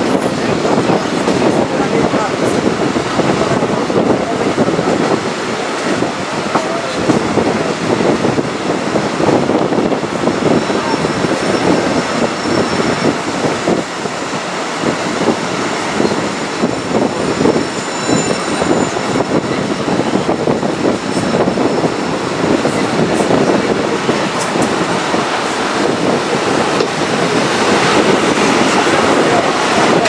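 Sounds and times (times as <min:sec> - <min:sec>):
train wheels rumbling on rails: 0:00.0 - 0:30.0
faint high wheel squeal: 0:10.5 - 0:13.2, 0:16.0 - 0:19.3.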